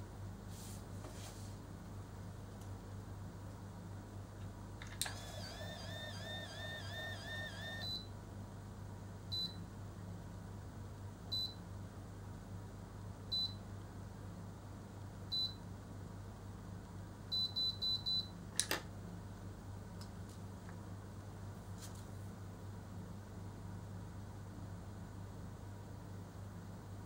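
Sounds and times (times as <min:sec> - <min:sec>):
hair curler beeping: 0:05.0 - 0:08.0.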